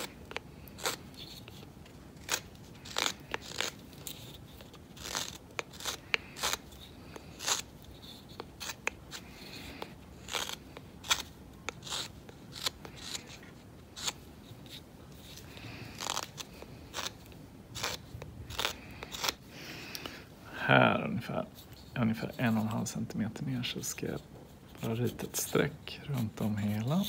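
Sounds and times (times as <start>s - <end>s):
knife whittling wood: 0.0s - 19.4s.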